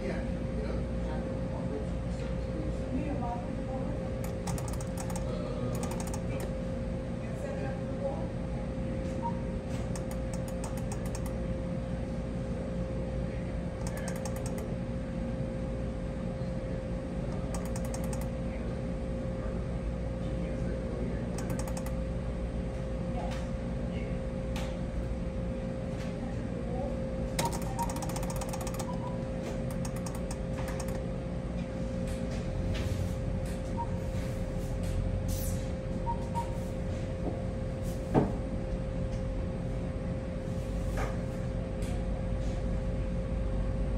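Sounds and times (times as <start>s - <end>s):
machine humming: 4.1s - 7.2s, 9.2s - 13.0s, 13.6s - 18.7s, 21.2s - 22.6s, 27.3s - 32.0s
rapid machine clicking: 4.2s - 6.5s, 10.0s - 11.4s, 13.8s - 14.7s, 17.4s - 18.3s, 21.4s - 22.0s, 27.4s - 31.0s.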